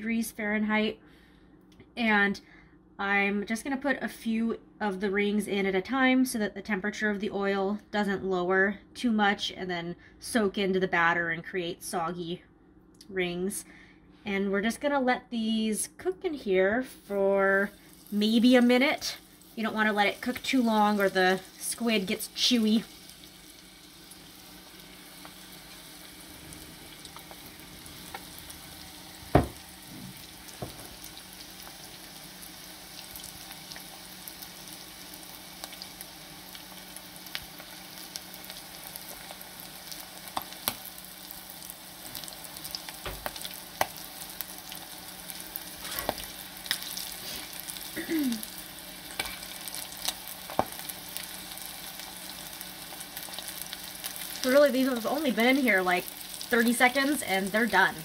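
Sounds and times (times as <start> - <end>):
food deep-frying in oil: 16.9 - 58.0
knock: 29.3 - 30.9.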